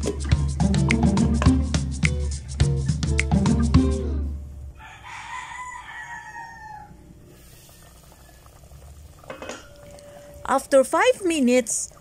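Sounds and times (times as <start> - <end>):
rooster crowing: 4.7 - 7.1
low steady hum: 7.0 - 12.0.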